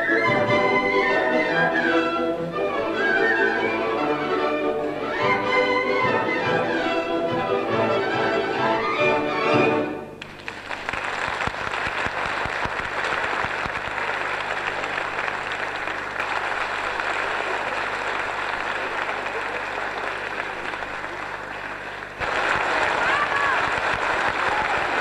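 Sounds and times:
audience applauding: 10.2s - 25.0s.

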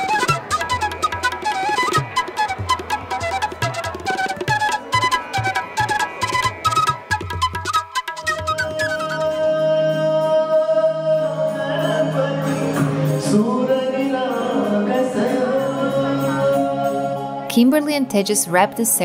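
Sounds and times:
keyboard accompaniment: 0.0s - 19.0s
person singing: 8.2s - 17.7s.

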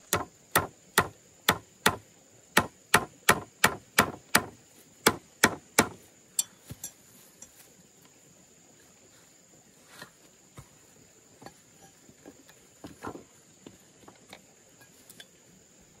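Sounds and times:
hammer nailing into wood: 2.6s - 6.0s.

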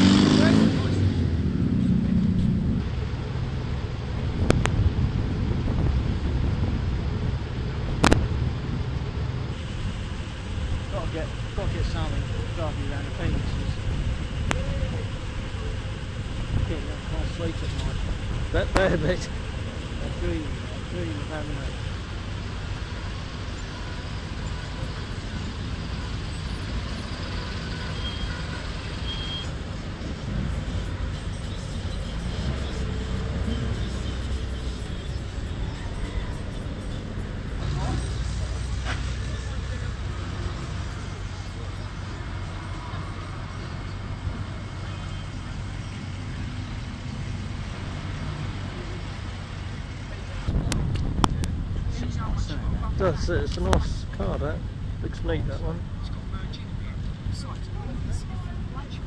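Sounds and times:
vehicle engines rumbling: 0.0s - 59.0s
faint high beeps: 29.0s - 29.6s.

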